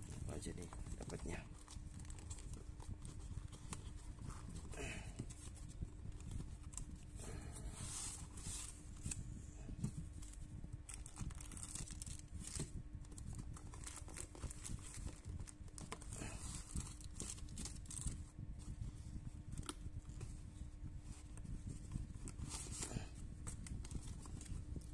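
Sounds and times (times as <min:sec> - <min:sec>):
packaging tearing and crinkling: 0:10.9 - 0:12.7, 0:13.6 - 0:18.2.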